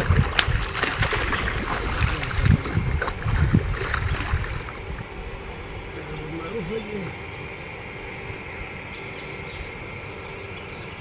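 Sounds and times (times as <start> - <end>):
fish thrashing and splashing: 0.0 - 5.1.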